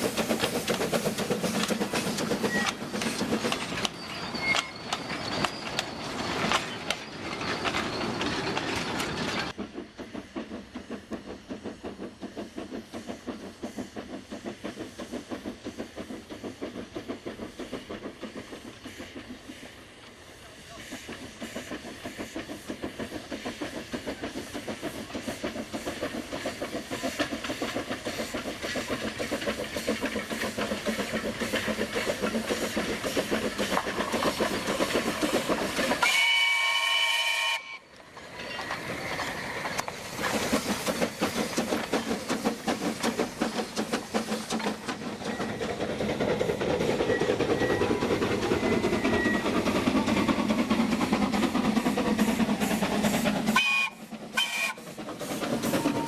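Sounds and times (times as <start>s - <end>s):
hissing steam: 0.0s - 56.0s
steam locomotive chuffing: 0.0s - 56.0s
steam whistle blast: 36.0s - 37.9s, 53.6s - 54.8s.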